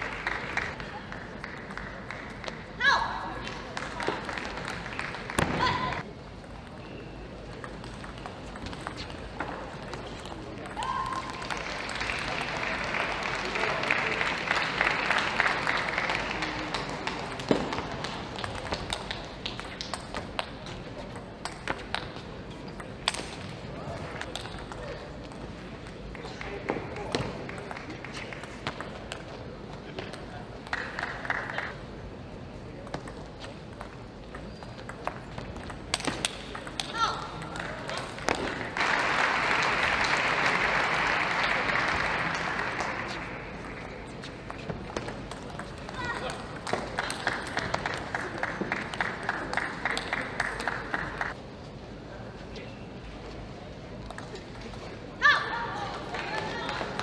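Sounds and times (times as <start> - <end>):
applause: 0.0 - 2.6, 3.6 - 6.0, 11.2 - 17.3, 30.7 - 31.7, 38.6 - 43.9, 46.9 - 51.4.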